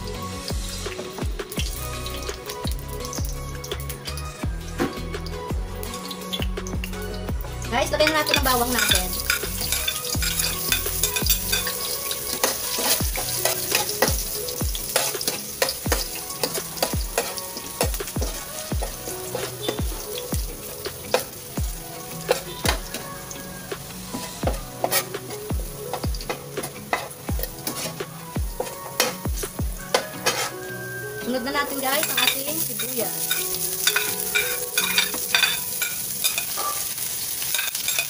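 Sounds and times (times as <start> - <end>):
garlic sizzling in oil: 0.0 - 38.0
metal spoon scraping pan: 8.0 - 19.8, 24.2 - 29.2, 29.9 - 30.8, 31.6 - 38.0.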